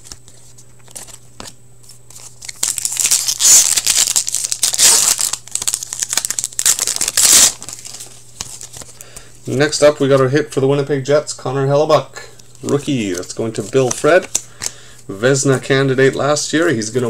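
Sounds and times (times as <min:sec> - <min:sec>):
foil wrapper tearing and crinkling: 0:02.1 - 0:09.0.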